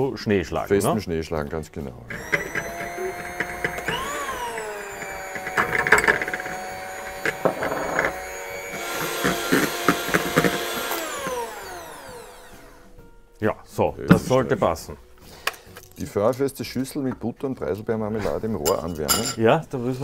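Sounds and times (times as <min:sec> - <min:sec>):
electric hand mixer whine: 0:02.1 - 0:13.0.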